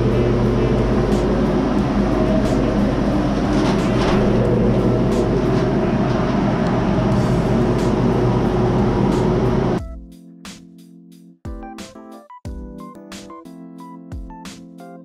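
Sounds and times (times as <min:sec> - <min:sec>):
electric blower running: 0:00.0 - 0:09.8.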